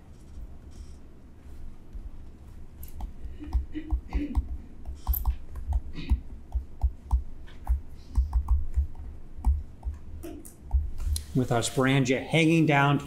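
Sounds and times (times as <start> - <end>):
stylus tapping on tablet screen: 2.9 - 11.3.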